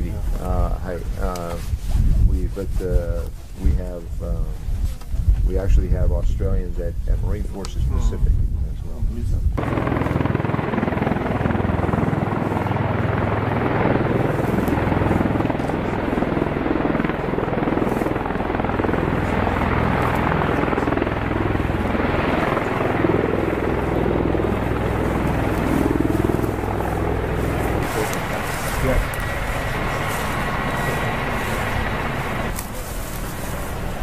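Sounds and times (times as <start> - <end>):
loud aircraft rotor noise: 9.4 - 34.0.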